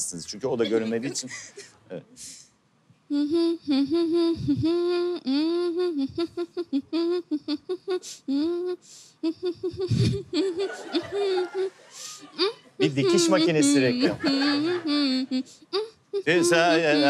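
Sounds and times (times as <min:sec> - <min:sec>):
woman humming into microphone: 0:03.1 - 0:11.7, 0:12.3 - 0:17.0.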